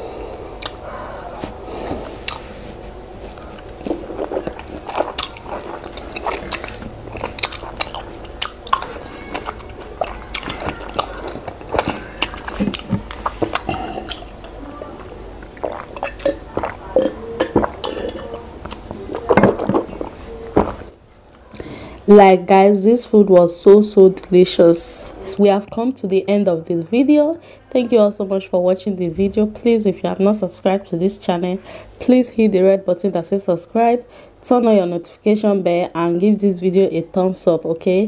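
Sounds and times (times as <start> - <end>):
person chewing food: 0.5 - 22.1
wet mouth clicks: 0.6 - 0.8.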